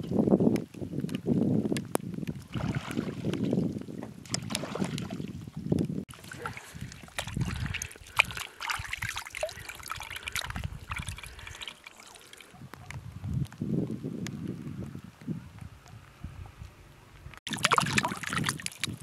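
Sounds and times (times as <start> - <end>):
water splashing in metal bowl: 6.1 - 12.6, 17.5 - 19.0.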